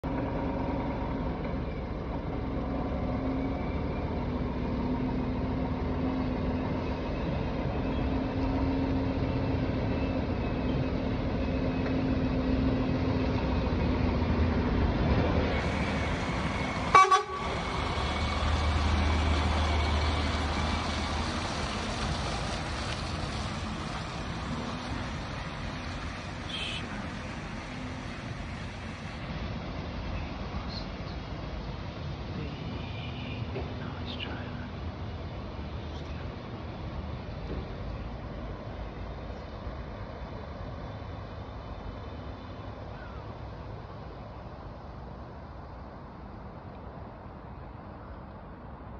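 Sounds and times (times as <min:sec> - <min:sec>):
lorry diesel engine running: 0:00.0 - 0:47.3
truck passing rumble: 0:00.0 - 0:48.9
truck horn toot: 0:16.9 - 0:17.6, 0:26.5 - 0:26.8.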